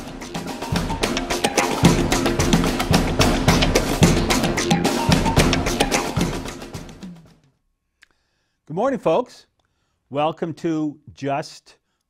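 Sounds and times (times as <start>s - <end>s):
theme music with drum beat: 0.0s - 7.4s.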